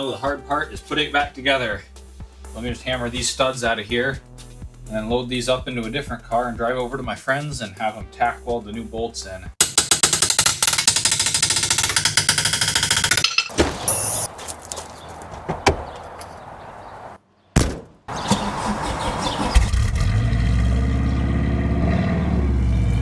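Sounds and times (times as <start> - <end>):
fast even ticking clatter: 9.6 - 13.3
car engine starting and idling: 18.1 - 23.0.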